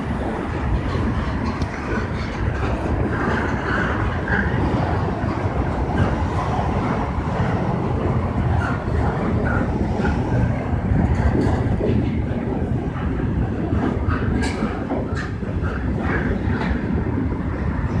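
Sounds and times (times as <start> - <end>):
train wheels clattering on rails: 0.0 - 18.0.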